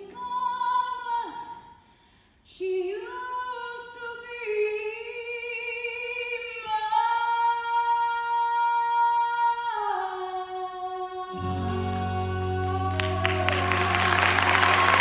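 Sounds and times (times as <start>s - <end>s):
woman singing sustained notes: 11.2s - 15.0s
low accompaniment: 11.3s - 15.0s.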